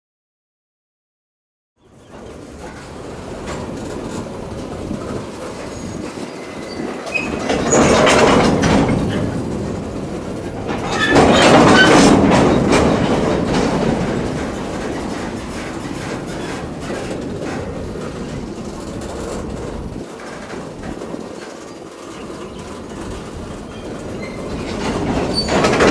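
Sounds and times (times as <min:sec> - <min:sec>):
steel wheels rolling on rail: 0:01.8 - 0:25.9
wheel squeals: 0:05.0 - 0:09.5, 0:10.7 - 0:12.8, 0:19.4 - 0:25.9.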